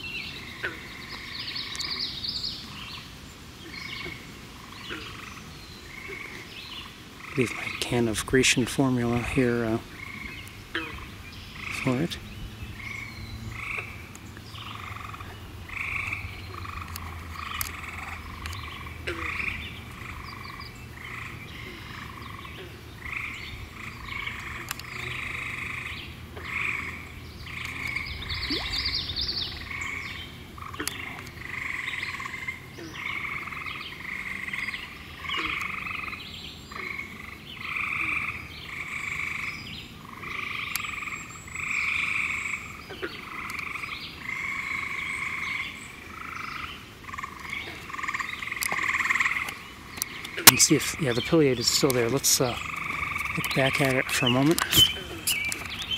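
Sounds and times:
frogs trilling: 0.0s - 55.9s.

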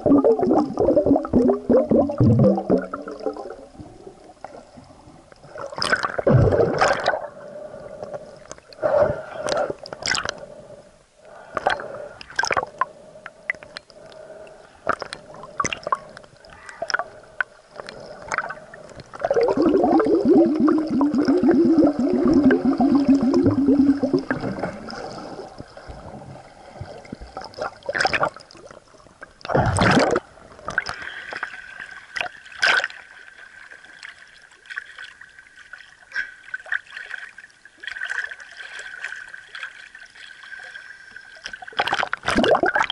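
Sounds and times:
water gurgling and bubbling: 0.0s - 4.7s, 5.5s - 7.9s, 17.9s - 28.7s, 29.4s - 30.9s, 41.8s - 42.9s.

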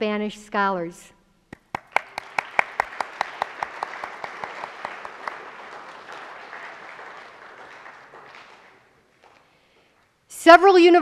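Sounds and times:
sharp individual claps: 1.5s - 10.1s
audience applauding: 1.6s - 9.7s.

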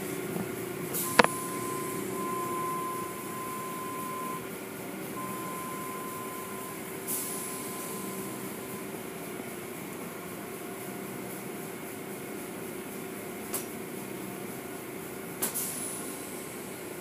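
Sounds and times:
car wash machinery hum: 0.0s - 17.0s
high steady whine: 1.0s - 4.5s.

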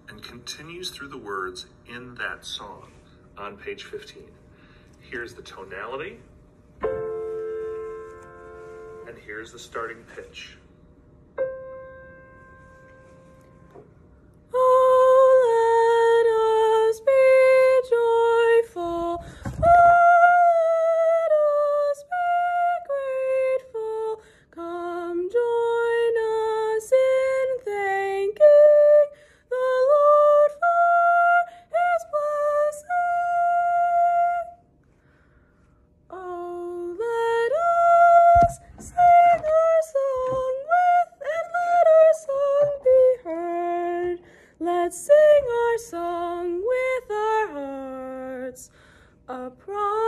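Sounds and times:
woman singing soprano: 14.5s - 34.6s, 36.1s - 50.0s.

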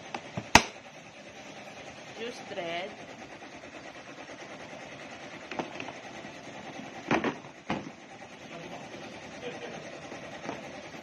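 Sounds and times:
steady background hum: 0.0s - 11.0s
plastic knocks and clatter: 5.4s - 6.0s, 7.0s - 8.0s.

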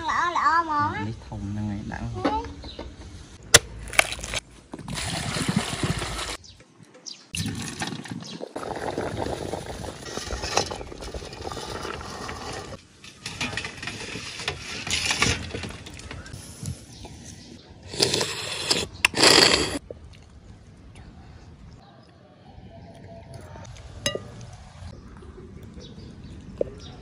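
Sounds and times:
water bubbling: 7.4s - 12.8s.

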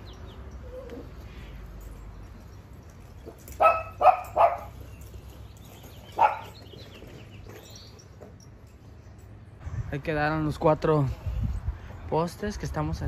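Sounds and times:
small dog barking: 3.6s - 4.8s, 6.2s - 6.6s.

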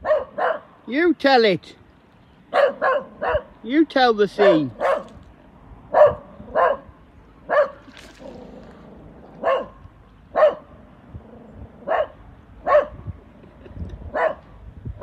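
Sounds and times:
small dog barking: 0.0s - 0.7s, 2.5s - 3.5s, 4.4s - 5.1s, 5.9s - 6.9s, 7.5s - 8.4s, 9.4s - 10.7s, 11.8s - 13.0s, 14.1s - 14.4s.

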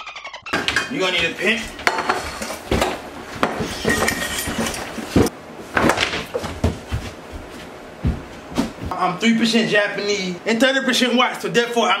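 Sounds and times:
kitchen items clinking and knocking: 0.5s - 6.3s.

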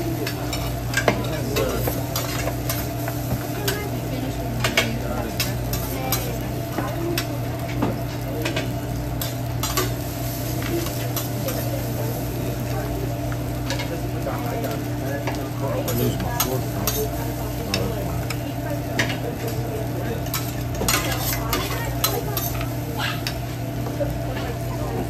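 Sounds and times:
rice sizzling: 0.0s - 25.0s
spatula scraping on griddle: 14.7s - 18.4s, 20.2s - 23.4s.

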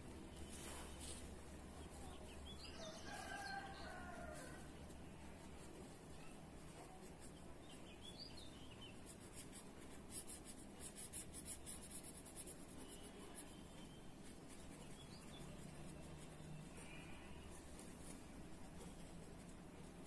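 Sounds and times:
pencil scratching on paper: 8.8s - 20.0s.

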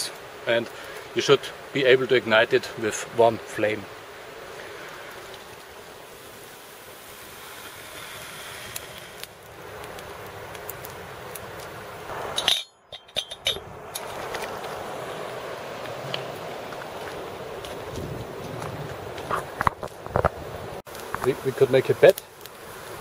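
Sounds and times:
shallow stream rushing: 0.0s - 20.9s
twig fire crackling: 0.0s - 23.0s
metal pot clinks: 12.4s - 13.7s.

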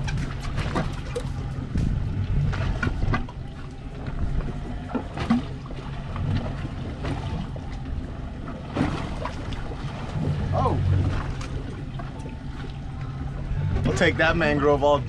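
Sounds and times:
wind noise on microphone: 0.0s - 5.5s
low steady rumble: 0.0s - 15.0s
water splashing against boat: 0.0s - 15.0s
short sharp splashes or knocks: 8.6s - 12.8s.

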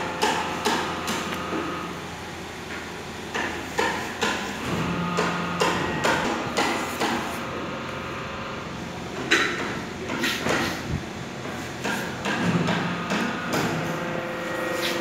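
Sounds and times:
knocks and clatter: 11.4s - 14.2s.

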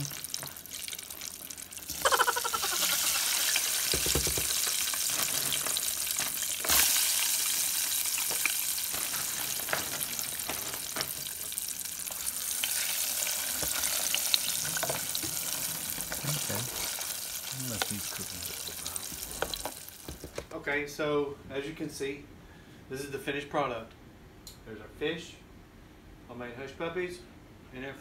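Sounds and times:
fries sizzling in hot oil: 0.0s - 20.4s.

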